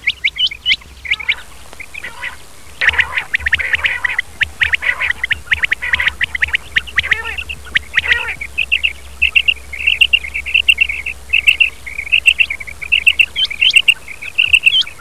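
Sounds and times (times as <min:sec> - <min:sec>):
quail calling: 0:00.0 - 0:15.0.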